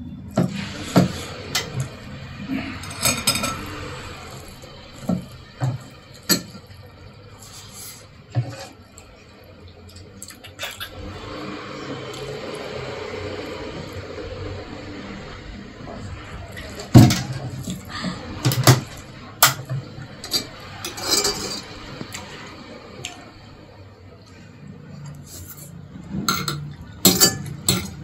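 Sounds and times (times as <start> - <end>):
cutlery clinking on ceramic plates: 26.2 - 28.0.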